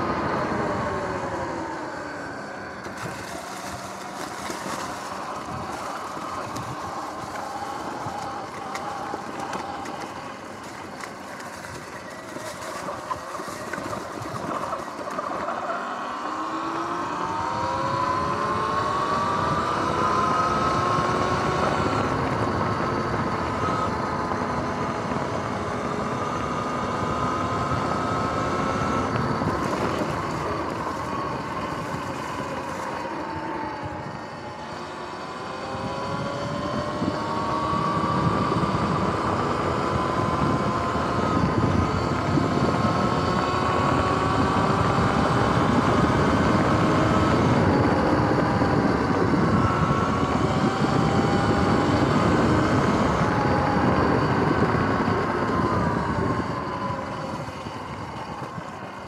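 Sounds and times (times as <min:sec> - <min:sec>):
electric motor whine rising: 0:00.0 - 0:59.0
tyre noise: 0:02.7 - 0:15.8.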